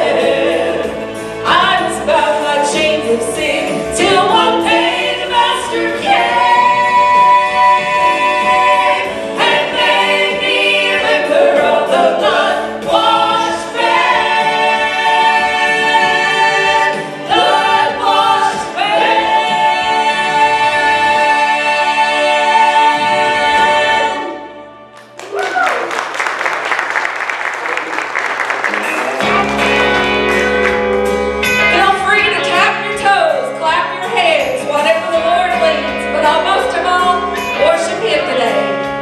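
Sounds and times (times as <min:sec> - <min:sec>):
vocal trio singing gospel: 0:00.0 - 0:24.8.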